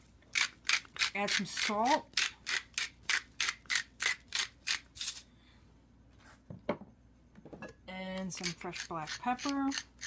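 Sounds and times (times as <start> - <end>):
salt grinder rasping: 8.4 - 10.0.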